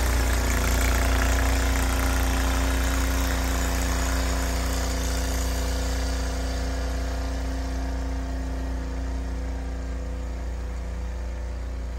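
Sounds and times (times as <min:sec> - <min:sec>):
snowblower engine running: 0:00.0 - 0:11.9.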